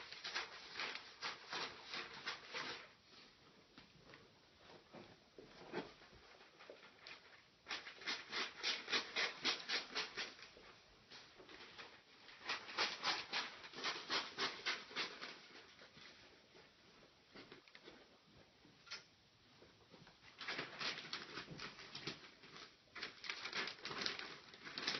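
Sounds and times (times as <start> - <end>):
paper rubbing and crinkling: 0.0 - 3.4, 6.0 - 10.6, 11.2 - 16.4, 20.3 - 24.9.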